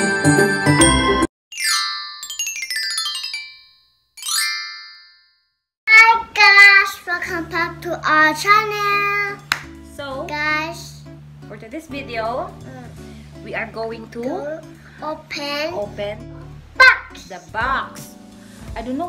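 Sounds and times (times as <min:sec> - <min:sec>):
sparkling chime effects: 0:00.7 - 0:05.5
soft background music: 0:06.3 - 0:19.0.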